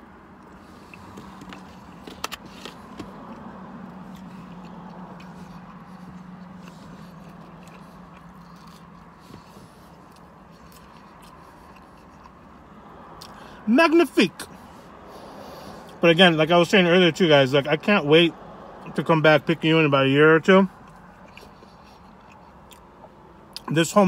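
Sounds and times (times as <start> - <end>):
low hum inside car: 0.0 - 24.0
person chewing food: 0.3 - 13.5, 20.7 - 23.7.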